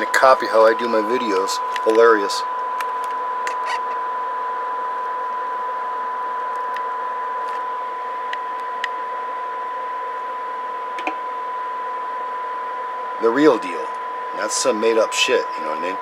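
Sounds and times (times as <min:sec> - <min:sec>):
radio hiss: 0:00.0 - 0:02.5, 0:13.2 - 0:16.0
steady test tone: 0:00.0 - 0:16.0.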